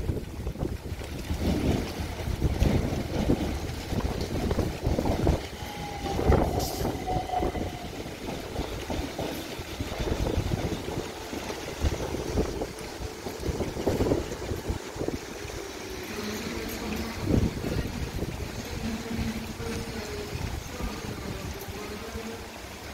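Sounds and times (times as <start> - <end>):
train wheels rumbling over rails: 0.0 - 22.9.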